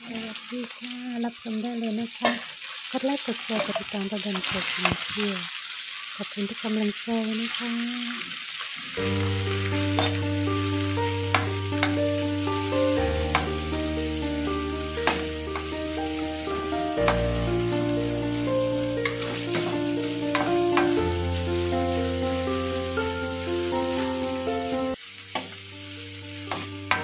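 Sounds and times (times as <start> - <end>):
meat sizzling in hot oil: 0.0 - 27.0
background music: 9.0 - 27.0
spatula scraping and clinking wok: 9.1 - 13.8, 15.0 - 16.2, 18.7 - 21.2, 26.5 - 27.0.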